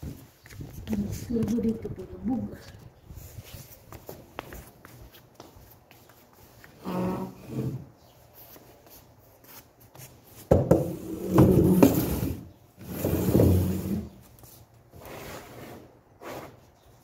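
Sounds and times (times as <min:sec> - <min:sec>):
chair scraping on tiled floor: 0:06.8 - 0:07.9, 0:10.6 - 0:14.2, 0:14.9 - 0:16.6.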